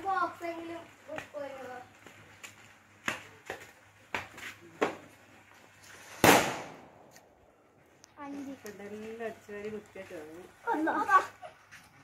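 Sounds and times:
firecracker bang: 0:06.0 - 0:07.4.

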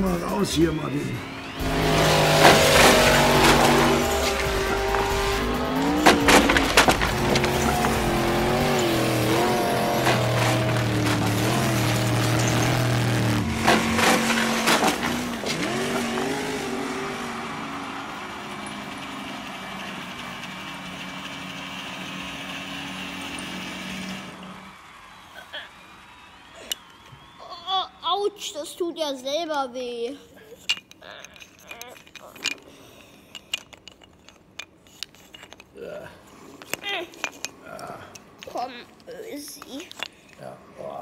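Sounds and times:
toy car motor whining: 0:01.1 - 0:17.2, 0:30.6 - 0:33.6, 0:36.2 - 0:40.2
wooden planks clacking: 0:01.7 - 0:16.5.

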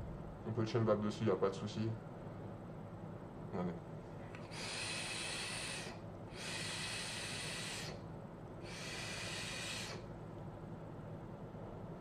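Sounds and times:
airy vaping hisses: 0:04.5 - 0:08.0, 0:08.6 - 0:10.1.

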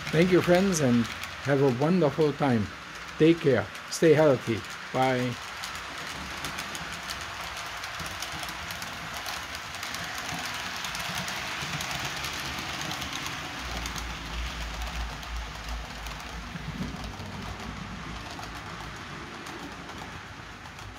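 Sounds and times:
model train wheels clicking: 0:00.0 - 0:20.9.

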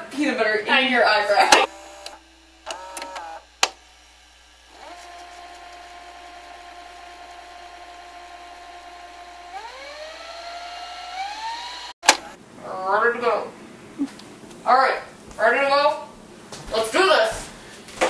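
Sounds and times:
tape rewind whining tone: 0:04.6 - 0:12.4.

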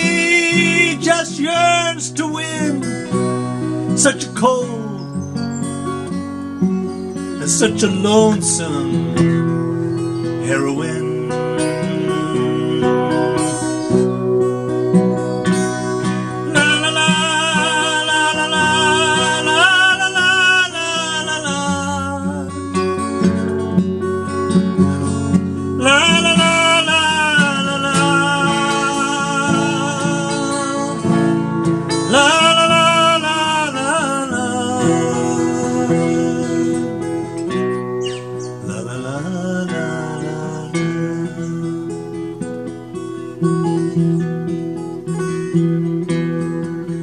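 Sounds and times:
man singing wordless held notes: 0:00.0 - 0:03.2, 0:03.9 - 0:05.1, 0:07.4 - 0:09.3, 0:10.4 - 0:14.0, 0:16.0 - 0:23.0, 0:24.8 - 0:37.6, 0:38.6 - 0:42.4
acoustic guitar: 0:00.0 - 0:47.0.

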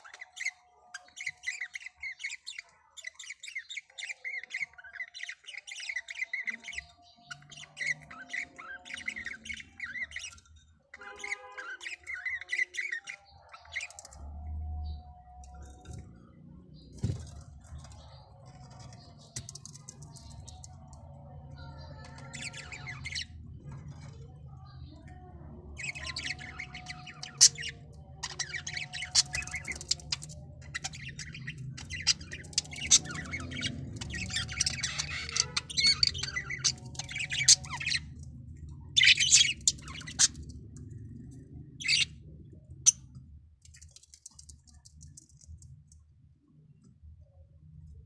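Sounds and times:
bird squawks: 0:00.0 - 0:14.1, 0:25.8 - 0:38.1
budgerigar chicks begging chirps: 0:21.6 - 0:23.4, 0:24.9 - 0:38.2, 0:38.9 - 0:40.5.

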